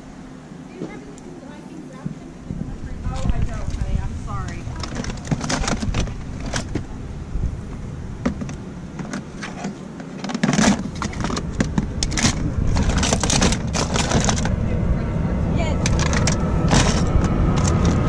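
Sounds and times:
low rumble: 1.9 - 9.4, 10.7 - 18.0
plastic toys clattering: 4.5 - 6.9, 8.2 - 14.5, 15.8 - 18.0.

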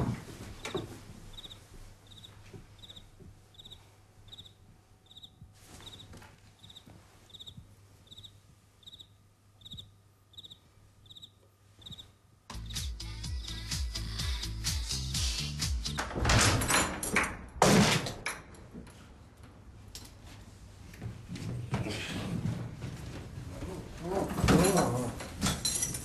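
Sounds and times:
faint rustling: 0.0 - 8.8
cricket chirping: 0.6 - 12.8
music: 12.5 - 16.8.

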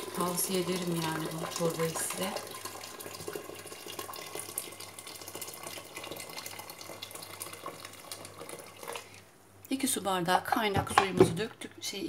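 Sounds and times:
water pouring into metal pot: 0.0 - 9.2.

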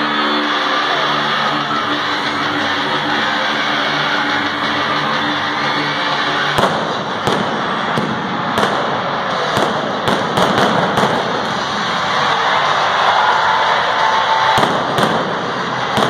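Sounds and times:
continuous dense noise: 0.0 - 16.0
pyrotechnic bangs: 6.5 - 12.1, 14.5 - 16.0.

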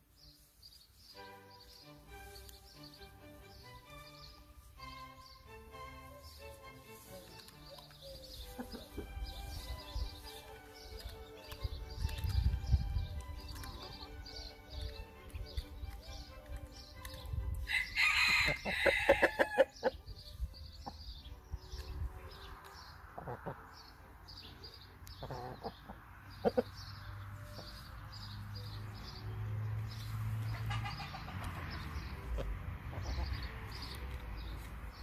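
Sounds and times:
chickens clucking: 6.0 - 24.0, 25.0 - 27.9, 29.9 - 34.7.

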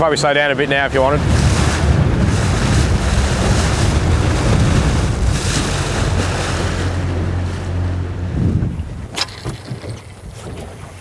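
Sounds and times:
boat engine humming: 0.0 - 11.0
choppy water against hull: 0.0 - 11.0
wind buffeting microphone: 0.0 - 11.0.

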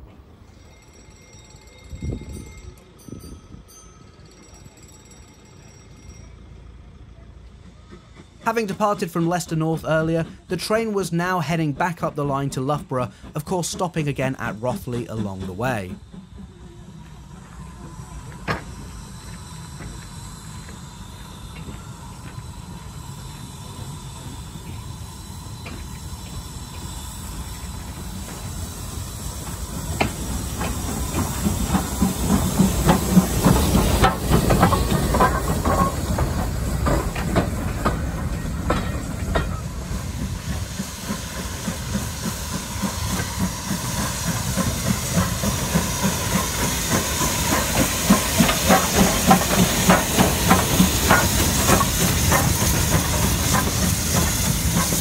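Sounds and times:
steam locomotive approaching: 0.0 - 55.0
steady hiss of steam: 7.6 - 55.0
wheels clicking over rail joints: 29.4 - 55.0.

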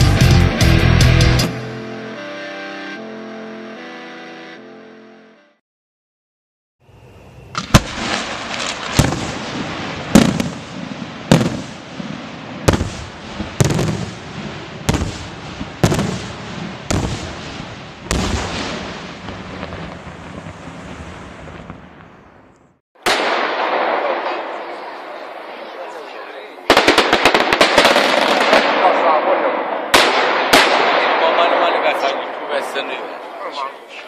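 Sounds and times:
firework bangs: 7.6 - 33.3.

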